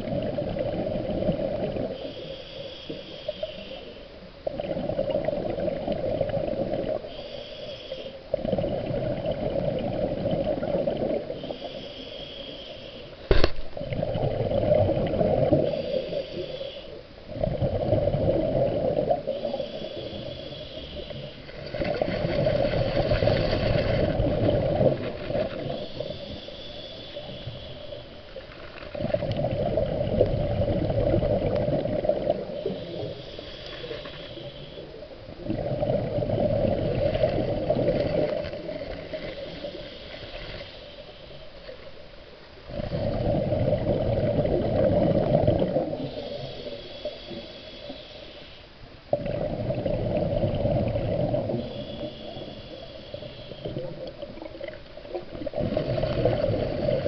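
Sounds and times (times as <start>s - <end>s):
exhaled bubbles bursting: 0.0s - 2.0s, 4.4s - 7.1s, 8.3s - 11.4s, 13.3s - 16.2s, 17.3s - 19.6s, 21.7s - 26.1s, 29.0s - 33.2s, 35.3s - 39.6s, 42.7s - 46.5s, 49.1s - 51.7s, 53.6s - 57.0s
regulator hiss on inhalation: 2.0s - 4.1s, 7.0s - 8.3s, 11.3s - 13.3s, 15.6s - 17.0s, 19.3s - 21.5s, 25.5s - 28.2s, 32.5s - 35.0s, 39.1s - 41.4s, 46.0s - 48.8s, 51.4s - 54.0s
sharp knock: 13.3s - 13.6s.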